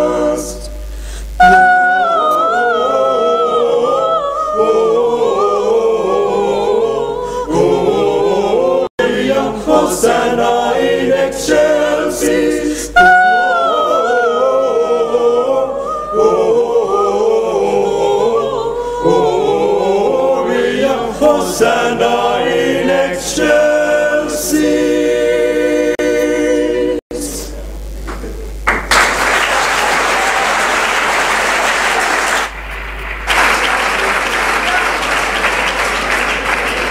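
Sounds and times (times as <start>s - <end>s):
a cappella group singing in harmony: 0.0s - 27.7s.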